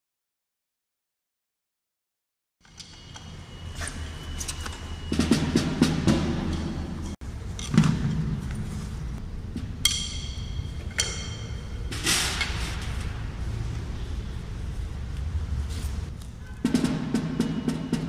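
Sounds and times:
percussive background music: 0:05.1 - 0:07.0, 0:16.6 - 0:18.0.

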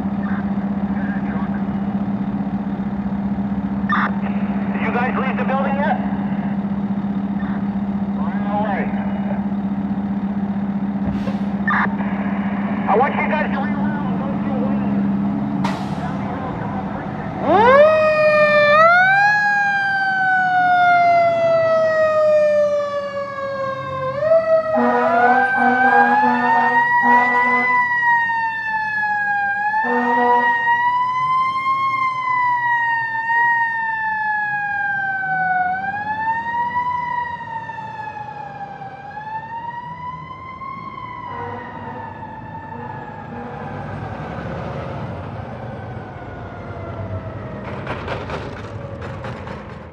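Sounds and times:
fire truck siren wailing: 0:00.0 - 0:49.9
air horn blasts: 0:24.8 - 0:27.8, 0:29.8 - 0:30.6.

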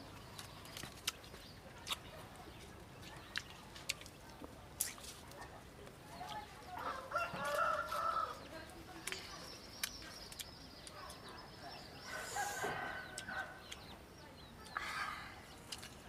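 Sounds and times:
rooster crowing: 0:06.8 - 0:08.4.

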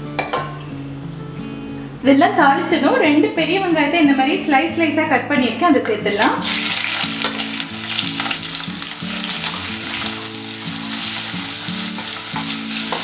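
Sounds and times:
onions sizzling in hot oil: 0:06.3 - 0:13.0.

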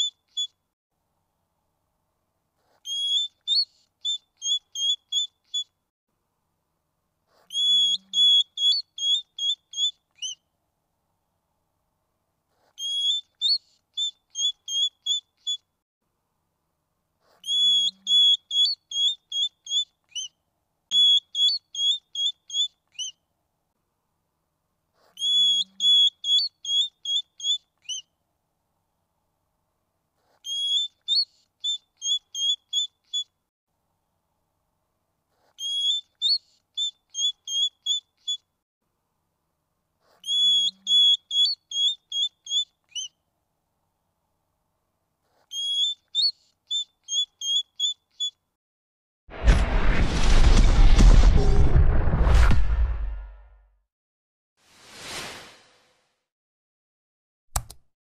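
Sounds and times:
small animal whistled chirping: 0:00.0 - 0:00.6, 0:02.8 - 0:05.7, 0:07.5 - 0:10.4, 0:12.8 - 0:15.6, 0:17.4 - 0:23.2, 0:25.1 - 0:28.1, 0:30.4 - 0:33.3, 0:35.6 - 0:38.5, 0:40.2 - 0:43.2, 0:45.5 - 0:48.4.

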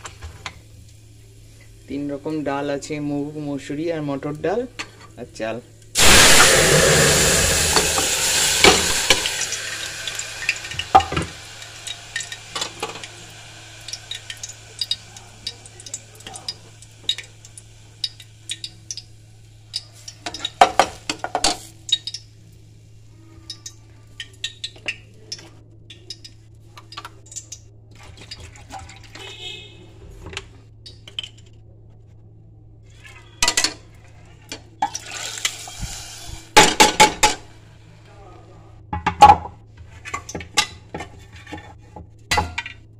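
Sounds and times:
low steady hum: 0:00.0 - 0:29.2
food sizzling in a pot: 0:06.0 - 0:22.4, 0:34.8 - 0:36.7.

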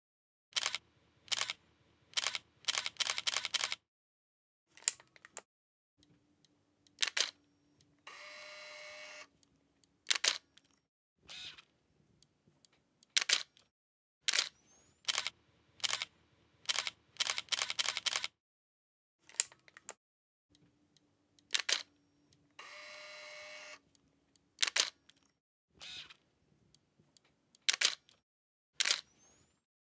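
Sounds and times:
camera shutters clicking: 0:00.6 - 0:01.6, 0:02.2 - 0:03.8, 0:07.0 - 0:07.4, 0:10.1 - 0:10.4, 0:13.1 - 0:13.5, 0:14.3 - 0:14.5, 0:15.1 - 0:16.1, 0:16.7 - 0:18.3, 0:21.5 - 0:21.9, 0:24.6 - 0:25.0, 0:27.6 - 0:28.0, 0:28.8 - 0:29.0.

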